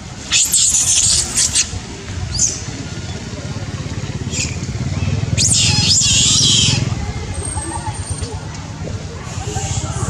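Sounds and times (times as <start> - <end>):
monkey squealing: 0.3 - 1.7, 5.4 - 6.8
low engine rumble: 1.2 - 10.0.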